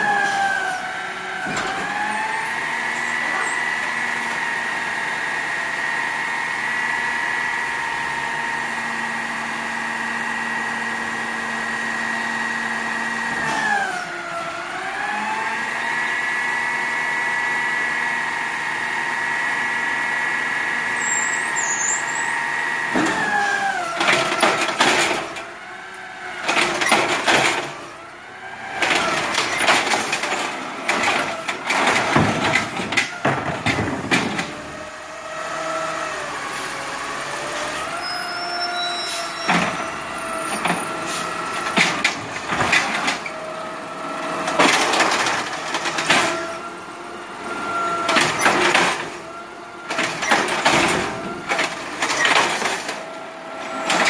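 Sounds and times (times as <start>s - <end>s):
lift arm and cart clanking: 0.0s - 5.1s, 21.0s - 35.0s, 36.3s - 54.0s
garbage truck hydraulics whining: 0.0s - 54.0s.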